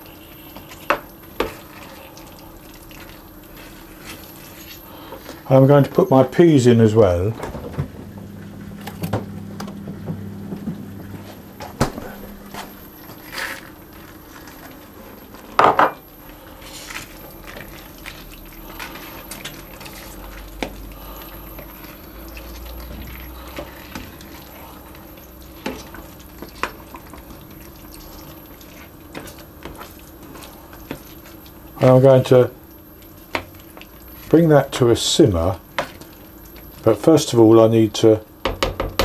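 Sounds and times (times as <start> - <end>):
spoon stirring thick filling: 0.0 - 6.9, 16.1 - 37.9.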